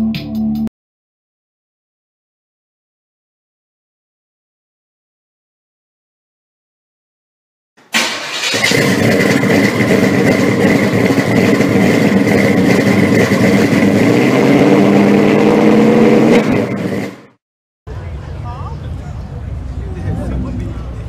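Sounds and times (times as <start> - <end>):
loud engine running: 8.0 - 21.0.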